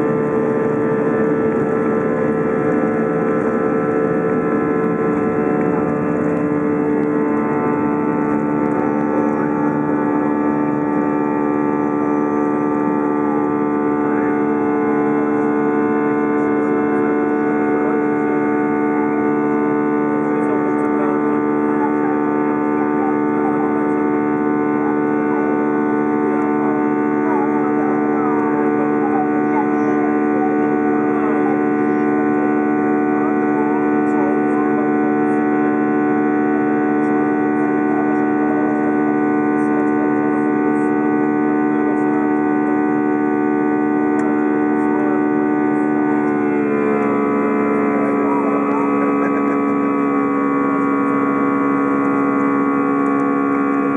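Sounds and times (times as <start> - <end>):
airplane engine drone: 0.0 - 53.9.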